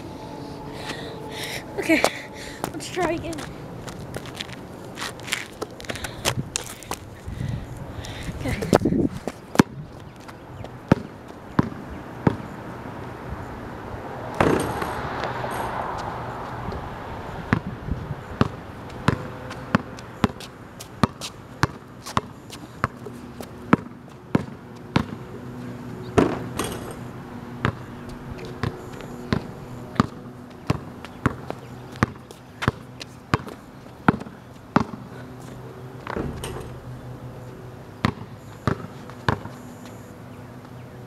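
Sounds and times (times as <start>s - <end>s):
basketball bouncing on concrete: 9.5s - 12.5s, 17.5s - 25.3s, 26.1s - 35.1s, 38.0s - 39.6s
ball hitting hoop with ring: 14.4s - 14.9s, 26.2s - 27.0s, 38.0s - 39.5s.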